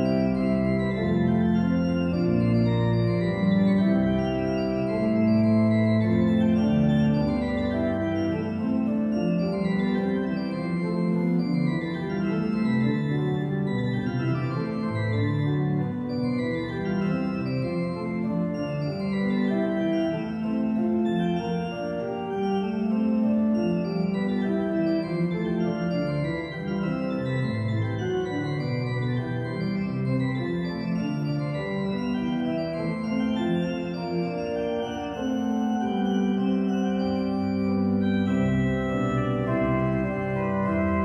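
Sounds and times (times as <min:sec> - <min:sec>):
pipe organ playing: 0:00.0 - 0:41.0.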